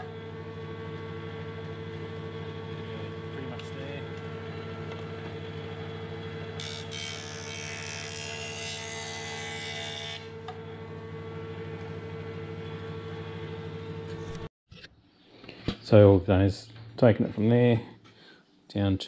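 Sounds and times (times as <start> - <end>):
jointer running: 0.0 - 14.5.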